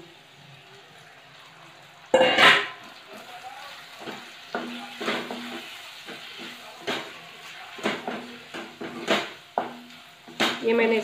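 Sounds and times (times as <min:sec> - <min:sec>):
food sizzling: 0:00.0 - 0:11.0
spatula knocking and scraping pan: 0:04.0 - 0:11.0.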